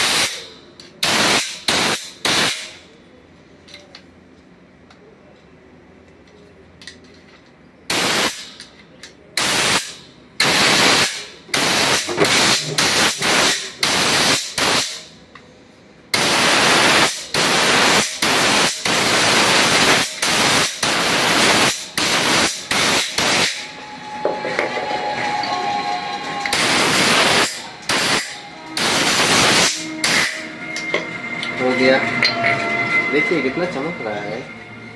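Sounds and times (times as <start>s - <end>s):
compressed air blow gun hissing: 10.4s - 15.0s, 26.5s - 30.4s.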